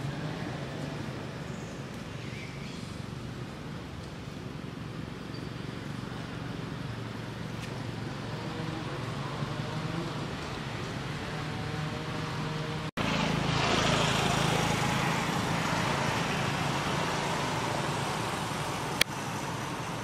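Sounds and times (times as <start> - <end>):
outdoor background noise: 0.0 - 20.0.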